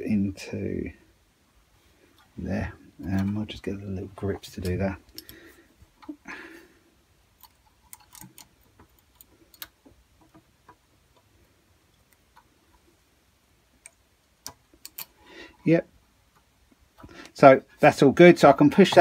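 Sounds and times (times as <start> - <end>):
faint metal clicks of pliers: 4.6 - 5.4, 7.4 - 9.8, 13.8 - 15.2.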